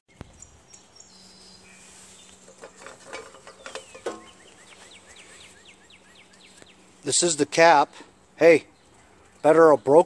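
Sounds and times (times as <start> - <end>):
bird chirping: 0.1 - 10.0
handling clicks and knocks: 2.4 - 4.7.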